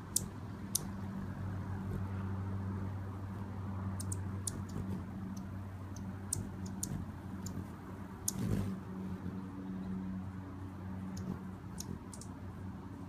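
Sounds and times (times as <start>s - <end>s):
steady low hum: 0.0s - 13.0s
hummingbird chip notes: 4.0s - 8.7s.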